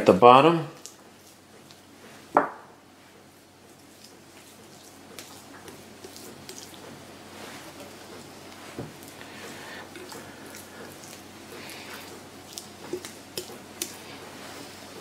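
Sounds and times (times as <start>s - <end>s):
hands squishing butter on chicken: 3.2s - 15.0s.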